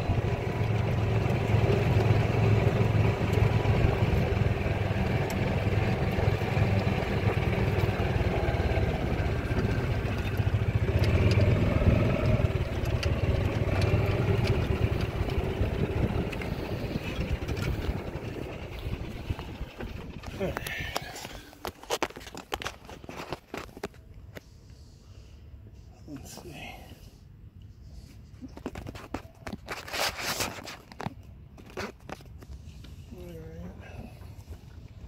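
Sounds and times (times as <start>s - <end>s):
golf cart motor hum: 0.0s - 24.0s.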